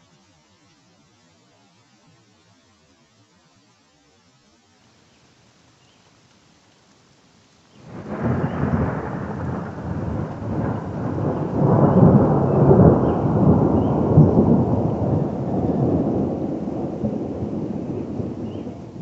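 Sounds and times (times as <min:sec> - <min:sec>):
rolling thunder: 0:07.8 - 0:19.0.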